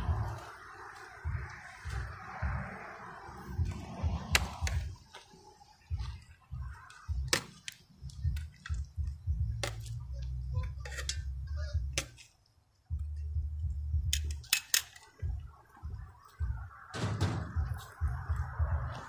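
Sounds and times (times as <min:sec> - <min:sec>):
low microphone rumble: 0:00.0 - 0:05.0.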